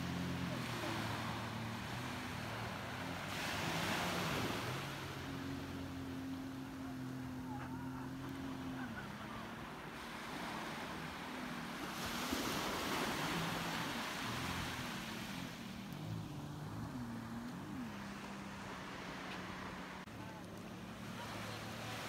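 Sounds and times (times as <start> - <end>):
distant jet ski engine: 0.0 - 22.0
waves washing onto sand: 0.0 - 22.0.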